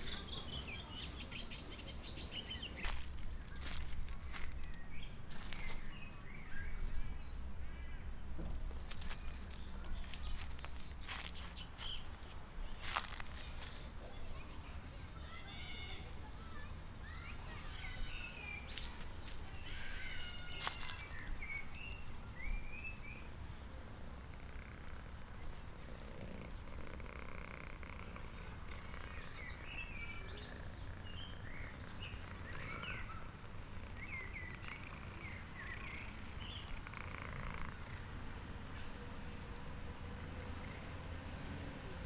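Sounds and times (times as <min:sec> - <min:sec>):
birds chirping: 0:00.0 - 0:38.2, 0:39.4 - 0:41.1
cat purring: 0:24.2 - 0:31.4, 0:32.2 - 0:38.0.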